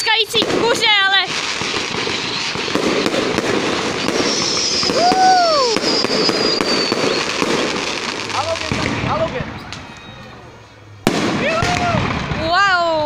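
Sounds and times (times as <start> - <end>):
fireworks crackling and popping: 0.0 - 13.0
high thin firework whistle: 1.6 - 3.3, 4.0 - 7.8, 9.5 - 10.5.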